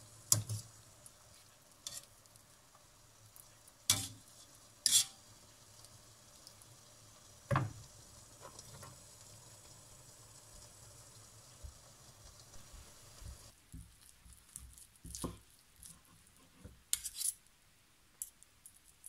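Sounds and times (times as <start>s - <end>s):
faint steady hiss: 0.0s - 19.0s.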